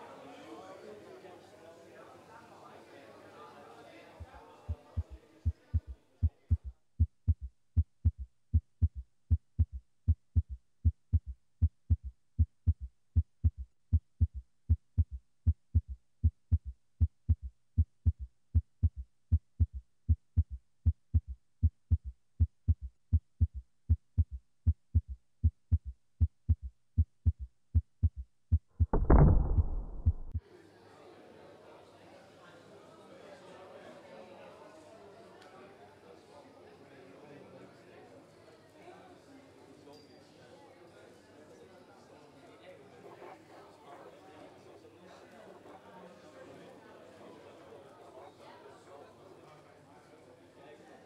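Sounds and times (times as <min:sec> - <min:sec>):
heartbeat thumps: 0:04.2 - 0:30.4
sudden loud noise: 0:28.8 - 0:30.4.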